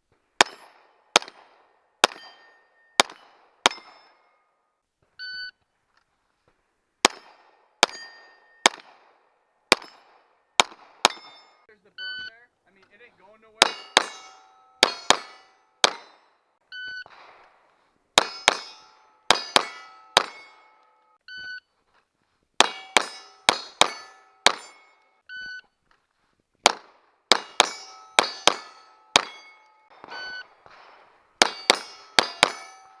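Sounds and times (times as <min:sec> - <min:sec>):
pistol shots: 0:00.4 - 0:04.2, 0:07.0 - 0:11.4, 0:13.6 - 0:16.3, 0:18.2 - 0:20.9, 0:22.6 - 0:24.9, 0:26.6 - 0:32.8
steel plate clanging: 0:13.6 - 0:16.2, 0:18.2 - 0:21.2, 0:22.6 - 0:25.0, 0:27.3 - 0:30.4, 0:31.4 - 0:33.0.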